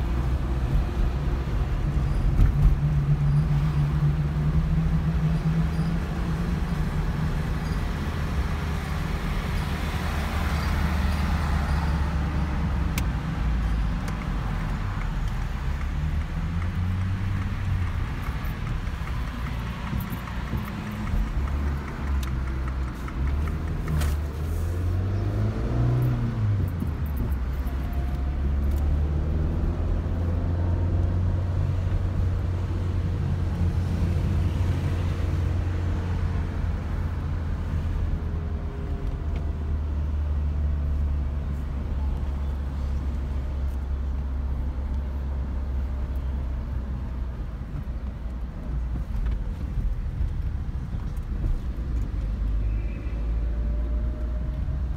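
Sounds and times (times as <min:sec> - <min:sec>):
car engine and tyres inside cabin: 0:00.0 - 0:54.9.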